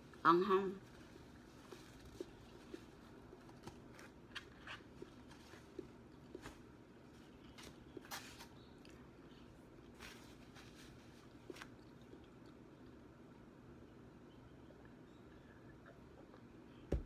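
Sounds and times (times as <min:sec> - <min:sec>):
chewing crunchy fried chicken: 0:01.2 - 0:13.2.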